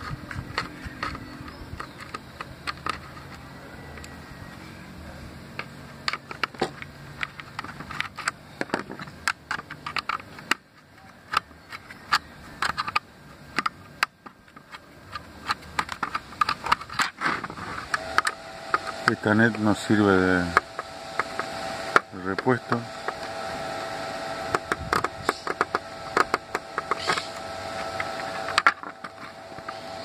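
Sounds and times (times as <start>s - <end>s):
low hum: 14.5s - 30.0s
screwdriver clicks and taps: 24.5s - 27.3s.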